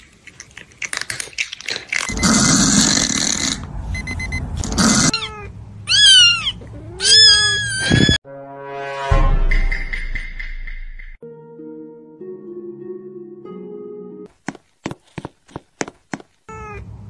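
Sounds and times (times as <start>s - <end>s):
cat meowing: 4.8s - 8.2s, 16.5s - 16.9s.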